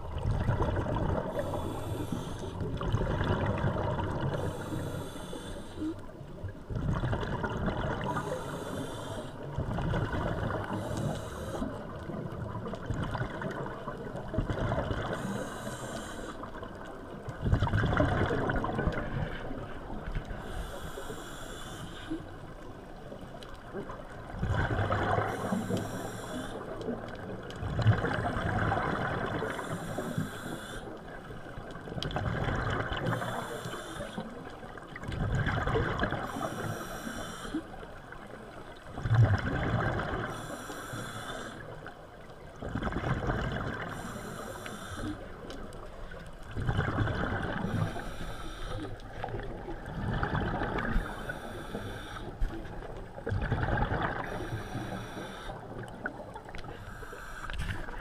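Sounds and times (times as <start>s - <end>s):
exhaled bubbles rushing: 0.0s - 1.6s, 2.6s - 4.5s, 6.7s - 8.2s, 9.6s - 10.8s, 12.1s - 15.2s, 17.4s - 19.6s, 24.2s - 25.5s, 27.6s - 29.6s, 32.0s - 33.2s, 34.9s - 36.3s, 39.0s - 40.3s, 42.6s - 43.9s, 46.4s - 47.9s, 49.2s - 51.1s, 52.6s - 54.6s
regulator inhale hiss: 1.3s - 2.7s, 4.3s - 6.1s, 8.1s - 9.6s, 10.6s - 11.9s, 15.1s - 16.6s, 20.3s - 22.5s, 25.2s - 26.9s, 29.4s - 31.2s, 33.0s - 34.5s, 36.2s - 37.8s, 40.2s - 41.9s, 43.8s - 45.4s, 47.6s - 49.3s, 50.8s - 52.6s, 54.2s - 55.9s, 56.6s - 58.0s.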